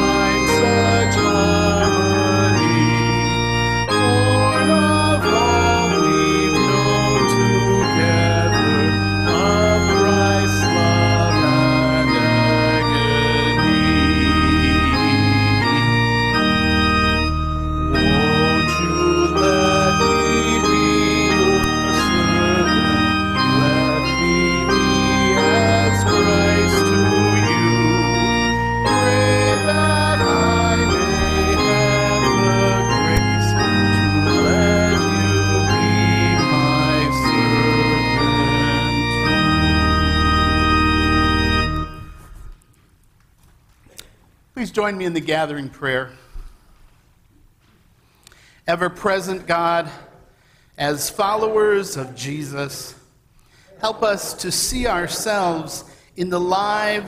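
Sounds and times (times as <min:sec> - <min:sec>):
man singing: 0:00.0 - 0:15.9, 0:17.9 - 0:40.1
organ playing hymn chords: 0:00.0 - 0:43.0, 0:48.3 - 0:57.0.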